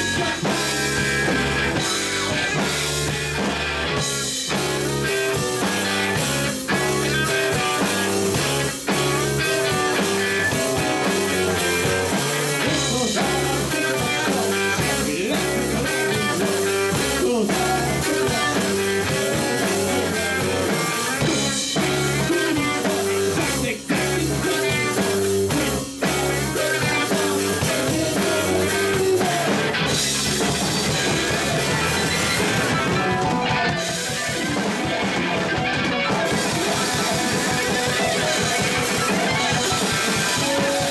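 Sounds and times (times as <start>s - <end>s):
live rock band playing: 0.0s - 40.9s.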